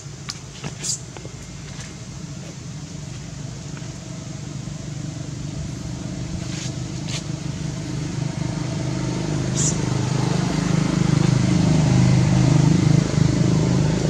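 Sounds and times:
motor engine running: 0:05.0 - 0:14.0.

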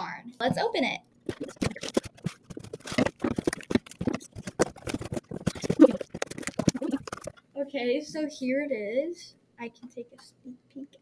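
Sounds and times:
cardboard rustling: 0:01.3 - 0:07.4.

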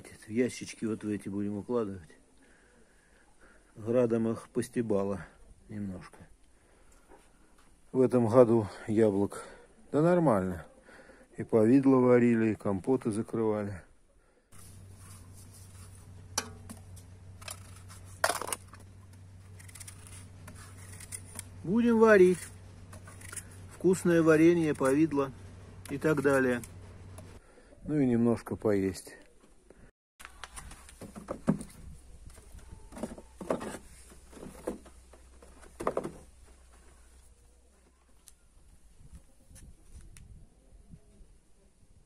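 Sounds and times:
steady low hum: 0:14.6 - 0:27.6
knife cutting apples: 0:14.8 - 0:25.2.

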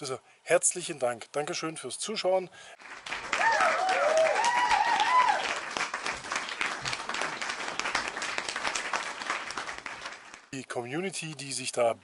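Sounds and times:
crowd applause: 0:02.8 - 0:10.5
people cheering: 0:03.2 - 0:09.9.

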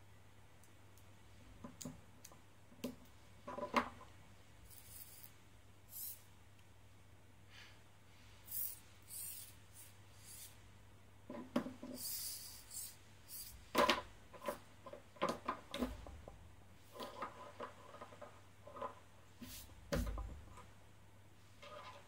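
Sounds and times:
parts rubbing and scraping on table: 0:04.7 - 0:06.2, 0:08.4 - 0:10.6, 0:11.4 - 0:16.2, 0:16.8 - 0:19.8, 0:21.5 - 0:22.0.

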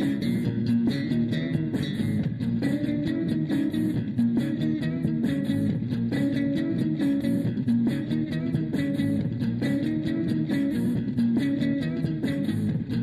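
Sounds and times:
plucked guitar over bass: 0:00.0 - 0:13.0.

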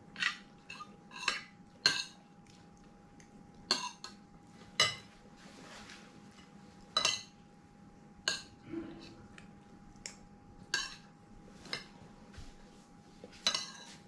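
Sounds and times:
faint steady hum: 0:00.0 - 0:14.0
cutlery clinking against a dish: 0:00.2 - 0:02.2, 0:03.7 - 0:04.2, 0:04.8 - 0:05.1, 0:06.9 - 0:07.4, 0:10.7 - 0:12.0, 0:13.4 - 0:14.0.

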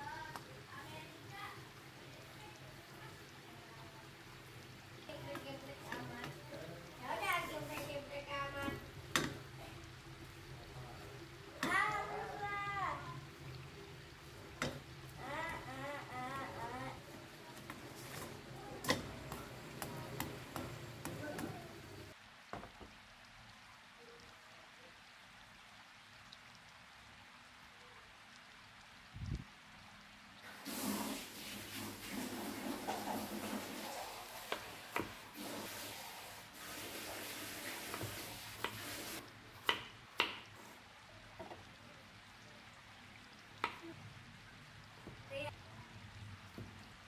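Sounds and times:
spatula clicking on frying pan: 0:08.6 - 0:09.4
steady hiss: 0:30.4 - 0:41.0.

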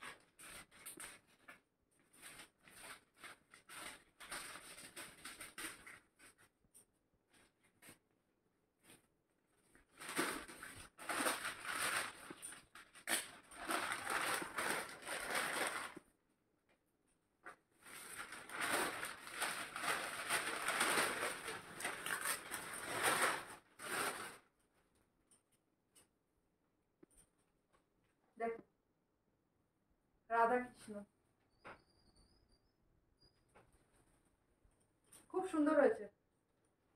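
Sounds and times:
paper tearing and crumpling: 0:02.1 - 0:06.4, 0:09.8 - 0:16.0, 0:17.8 - 0:24.5.

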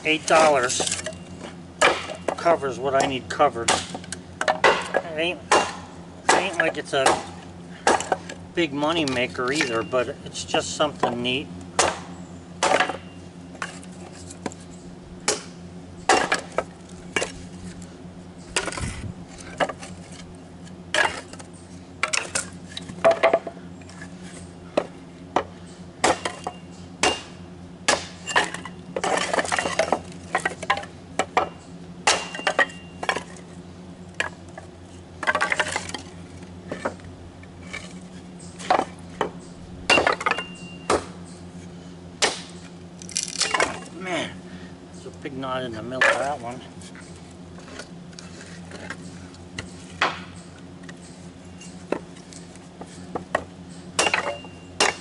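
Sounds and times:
wood pieces clattering: 0:28.3 - 0:31.5, 0:34.2 - 0:37.0, 0:43.0 - 0:44.0.

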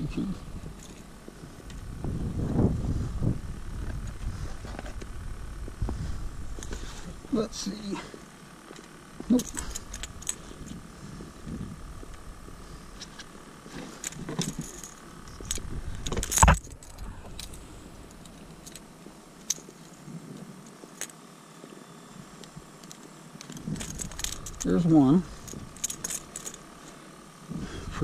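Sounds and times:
light clicks and metal clinking: 0:00.1 - 0:01.9, 0:08.6 - 0:10.8, 0:12.9 - 0:21.2, 0:22.4 - 0:27.0.

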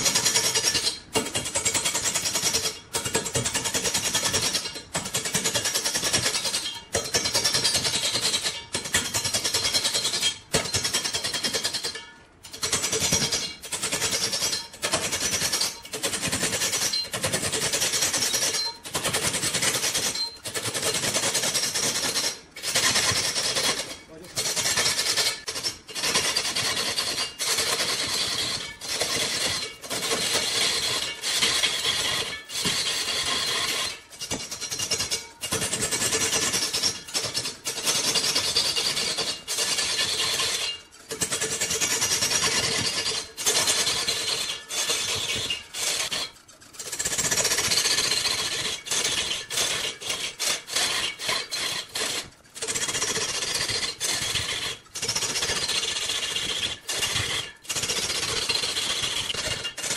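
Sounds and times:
lathe tool scraping wood: 0:22.2 - 0:35.6, 0:47.5 - 0:57.8.

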